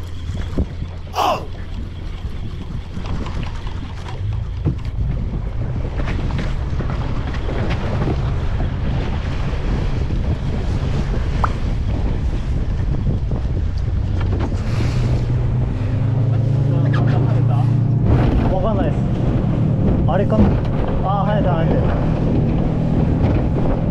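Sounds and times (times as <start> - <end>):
sea water: 0.0 - 16.7
boat engine rumble: 0.0 - 23.9
wind buffeting microphone: 1.7 - 16.6, 17.7 - 23.9.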